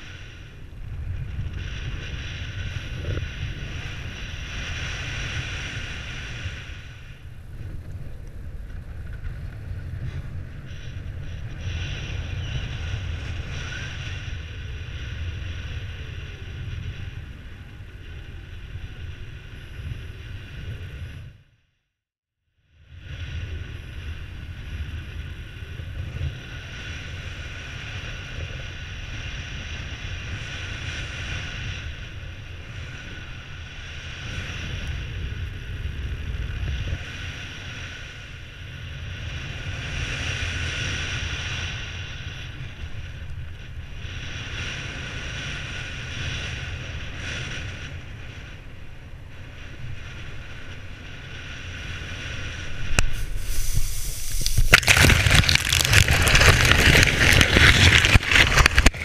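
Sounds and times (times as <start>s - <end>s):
wind buffeting microphone: 0.0s - 21.4s, 49.5s - 59.0s.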